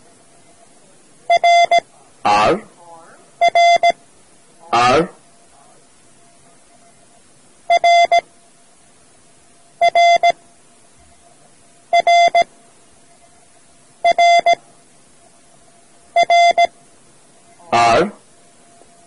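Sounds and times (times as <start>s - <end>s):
morse code beeps: 1.3s - 2.6s, 3.4s - 4.0s, 7.7s - 8.3s, 9.8s - 10.4s, 11.9s - 12.5s, 14.0s - 14.6s, 16.1s - 16.8s.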